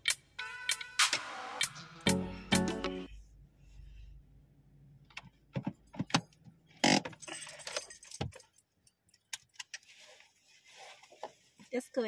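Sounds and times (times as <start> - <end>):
car keys jangling: 5.2 - 9.8.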